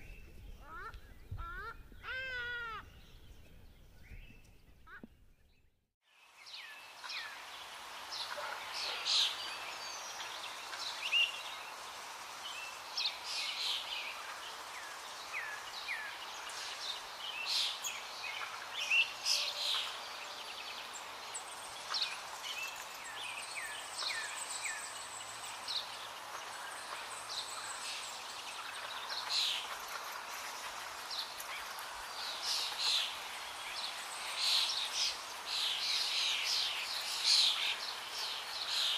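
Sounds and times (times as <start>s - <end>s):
steady hiss: 6.1s - 38.9s.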